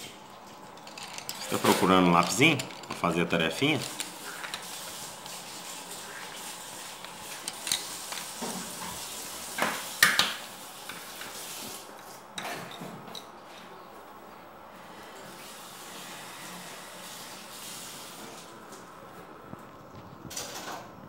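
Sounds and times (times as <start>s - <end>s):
pencils rattling in fabric case: 0.5s - 5.0s.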